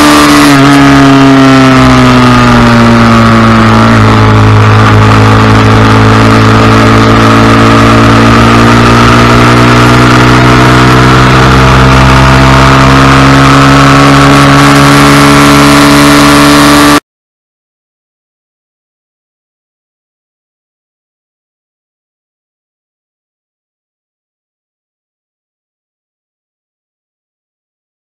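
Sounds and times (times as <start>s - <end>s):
small motorcycle engine revving: 0.0s - 17.0s.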